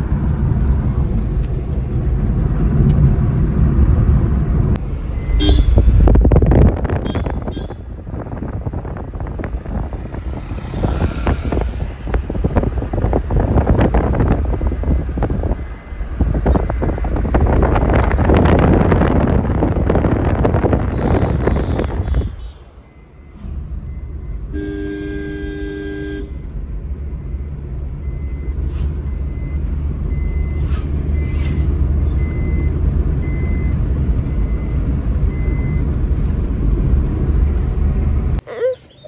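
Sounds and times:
car engine and road rumble: 0.0s - 39.0s
vehicle horn: 5.4s - 5.9s, 7.0s - 7.9s, 20.9s - 22.7s, 24.5s - 26.4s.

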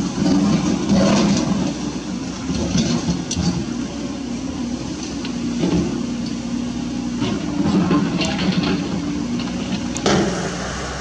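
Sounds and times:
diesel truck engine running: 0.0s - 11.0s
light clanks and rattles: 7.2s - 10.2s.

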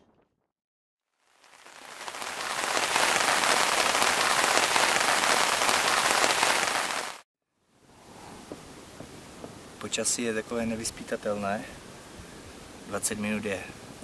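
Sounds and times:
rain on tent fabric: 1.1s - 7.2s.

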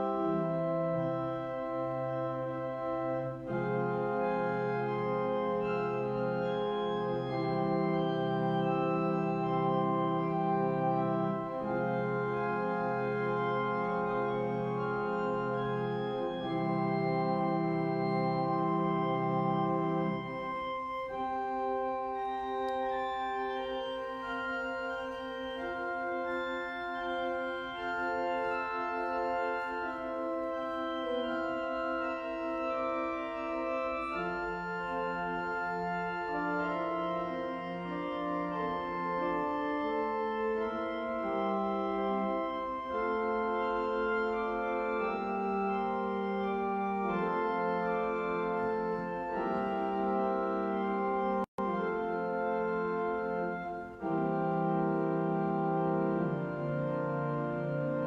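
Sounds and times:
organ playing slow chords: 0.0s - 58.0s.

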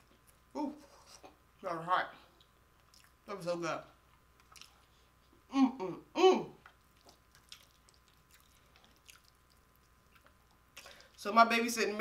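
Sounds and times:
woman humming with enjoyment: 0.6s - 0.9s
soft chewing clicks: 2.3s - 3.2s, 4.0s - 5.4s, 6.6s - 11.2s.

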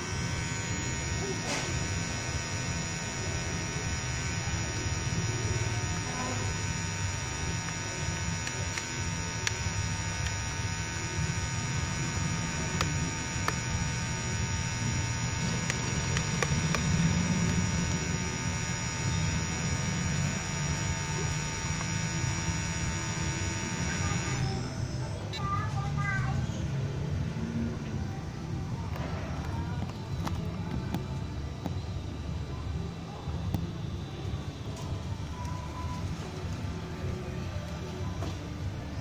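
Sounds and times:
electric motors whirring: 0.0s - 25.5s.

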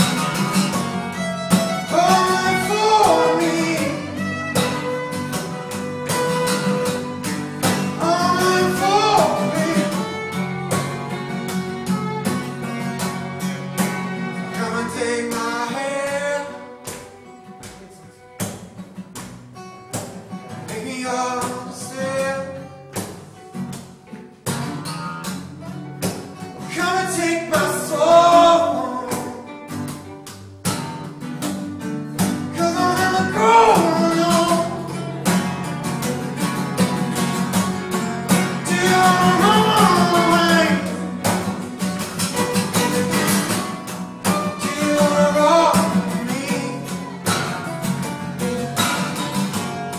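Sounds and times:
bowed fiddle: 0.0s - 18.8s, 37.7s - 48.6s
strummed acoustic guitars: 0.0s - 49.9s.

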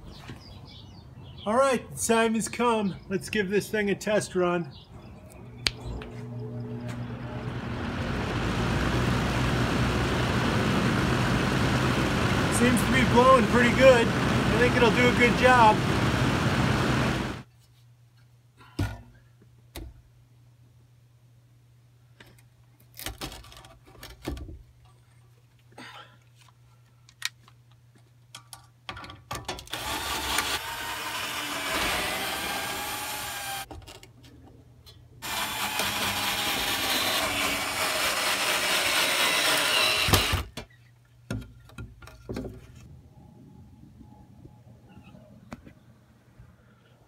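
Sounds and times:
cordless drill running: 7.5s - 17.4s, 29.7s - 33.7s, 35.2s - 40.5s.

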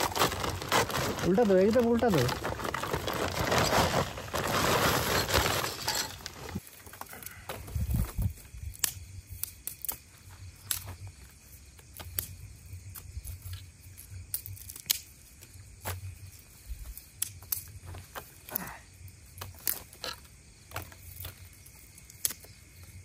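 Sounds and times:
wood pieces knocking: 0.0s - 6.6s
firewood rustling and clattering: 0.0s - 8.9s, 12.9s - 18.6s, 19.3s - 23.0s.

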